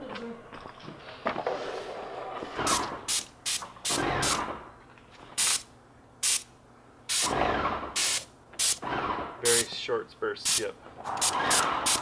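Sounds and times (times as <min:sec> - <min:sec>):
paint sprayer bursts: 0:05.4 - 0:06.5, 0:07.1 - 0:08.8.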